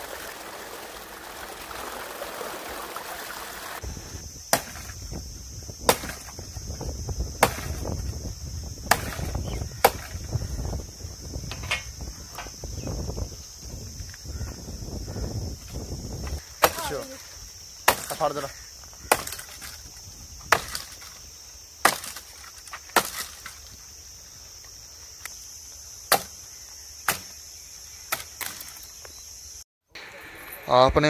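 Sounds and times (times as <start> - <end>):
hatchet chopping branches: 4.5 - 5.0, 5.8 - 6.5, 7.4 - 8.1, 8.8 - 10.3, 16.5 - 17.2, 17.8 - 18.4, 19.0 - 21.2, 21.8 - 23.6, 26.1 - 26.4, 27.0 - 27.4, 28.1 - 28.8.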